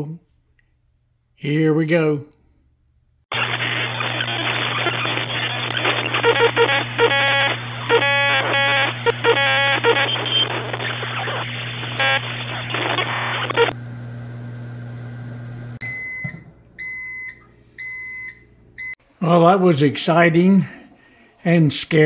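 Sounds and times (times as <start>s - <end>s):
crackling and buzzing of arcing foil: 3.3s - 13.7s
microwave humming: 3.3s - 19.0s
microwave beeping: 6.0s - 19.0s.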